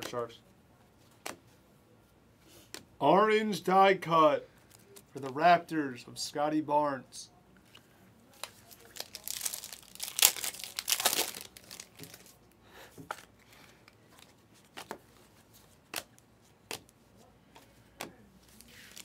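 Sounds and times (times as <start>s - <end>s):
rustle of cards and wrappers: 4.5s - 5.4s, 7.6s - 19.0s
cards snapping off stack: 15.9s - 16.1s.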